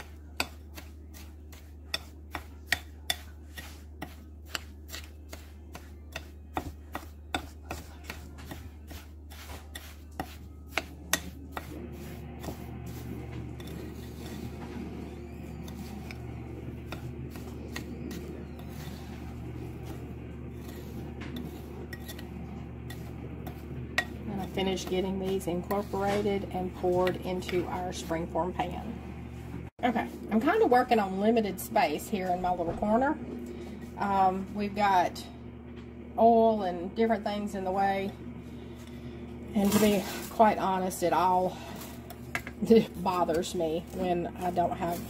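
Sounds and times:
spoon scraping crumbs in bowl: 0.0s - 28.3s, 41.2s - 45.0s.

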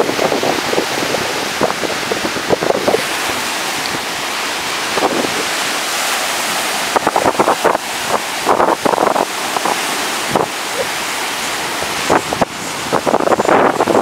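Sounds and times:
surf breaking on sand: 0.0s - 14.0s
wind buffeting microphone: 0.0s - 14.0s.

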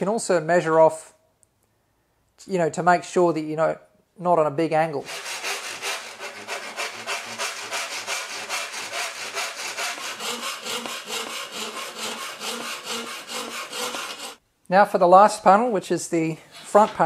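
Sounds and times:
file rasping on steel edge: 5.0s - 14.4s.

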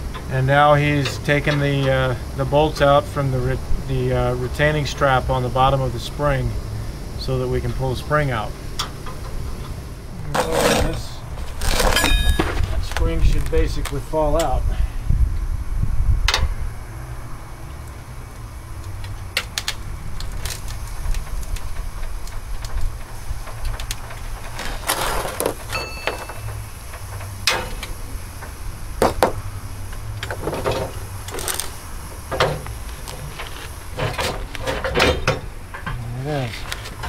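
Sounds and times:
steady low rumble: 0.0s - 24.9s
clanks of tools and steel parts: 11.6s - 14.5s, 23.6s - 28.5s, 30.2s - 31.7s, 32.3s - 37.0s.

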